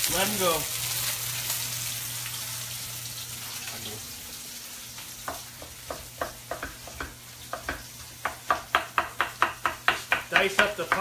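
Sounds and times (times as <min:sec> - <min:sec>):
knife chopping on cutting board: 0:05.2 - 0:11.0.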